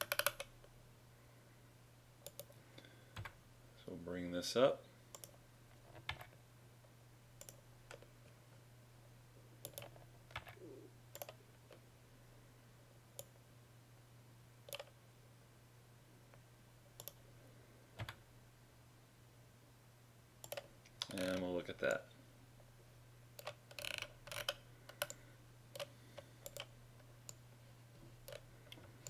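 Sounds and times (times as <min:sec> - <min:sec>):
mouse and keyboard clicks: 0:00.0 - 0:00.5, 0:23.4 - 0:26.7
low steady hum: 0:00.0 - 0:29.0.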